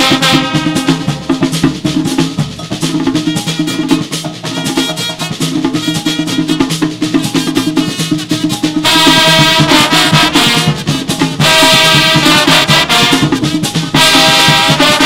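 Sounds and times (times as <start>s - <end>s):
brass chords: 0.0s - 1.6s, 3.6s - 6.8s, 7.4s - 15.0s
drum and percussion rhythm: 0.0s - 15.0s.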